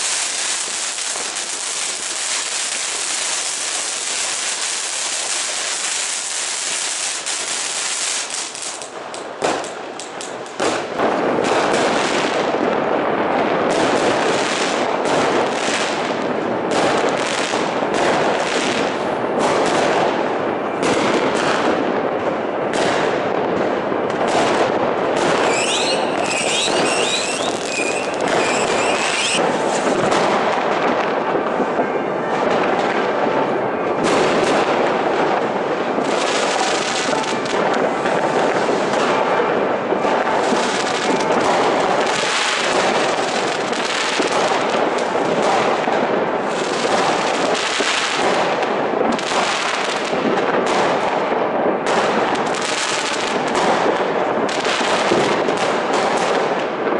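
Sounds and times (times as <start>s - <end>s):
firework fountain hissing: 0.0s - 12.5s, 25.3s - 30.6s
firecrackers crackling and banging: 0.0s - 56.9s
warbling high whistle: 25.5s - 29.4s.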